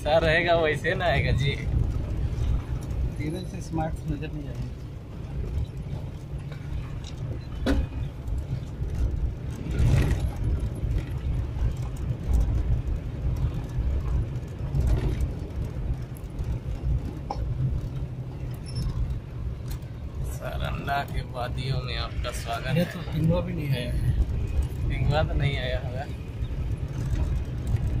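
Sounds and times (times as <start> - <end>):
vehicle engine and tyres rumbling: 0.0 - 28.0.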